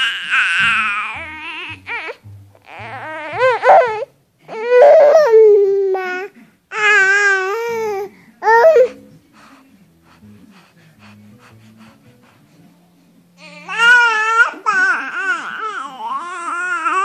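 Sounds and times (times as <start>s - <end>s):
baby crying: 0.0s - 9.0s, 13.4s - 17.0s.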